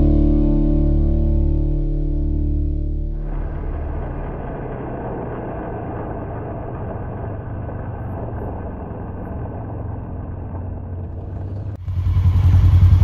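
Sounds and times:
vehicle engine rumble: 0.0 - 13.0
tyres on loose gravel: 3.2 - 11.8.

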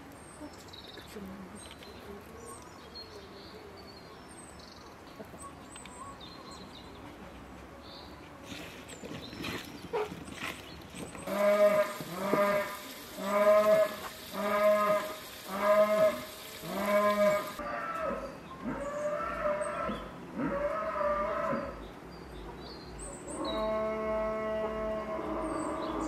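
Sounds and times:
livestock calling: 11.3 - 21.7.

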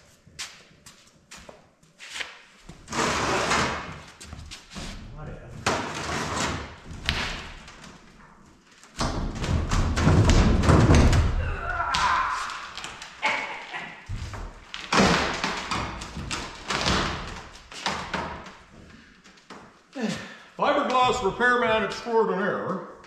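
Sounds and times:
knocks and thumps: 9.0 - 12.1.

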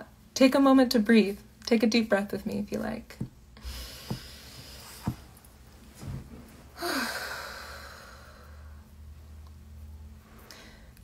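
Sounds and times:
person inhaling: 3.6 - 5.2, 6.8 - 8.8, 10.4 - 11.0
person sighing exhale: 6.8 - 8.6.

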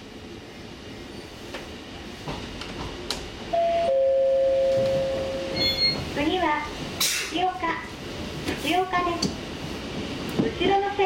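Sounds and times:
train wheel clunks: 4.6 - 6.2.

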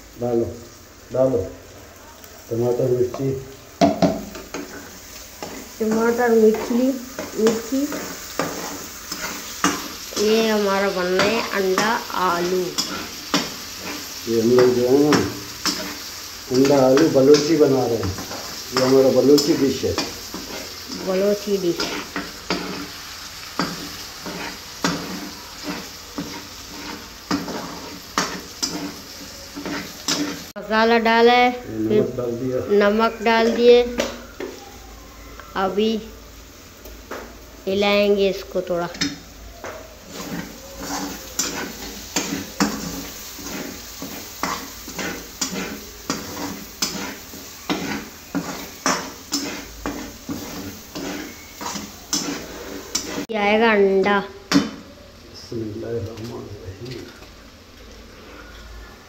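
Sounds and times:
food sizzling: 0.0 - 59.0
fork scraping frying pan: 4.3 - 10.4, 11.1 - 23.0, 23.6 - 30.5, 40.1 - 53.3.

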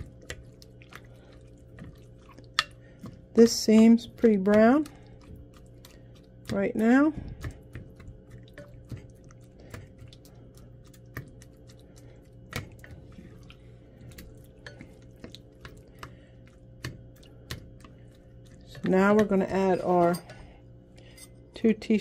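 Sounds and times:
squishing ground meat: 0.0 - 19.6
faint steady hum: 0.0 - 22.0.

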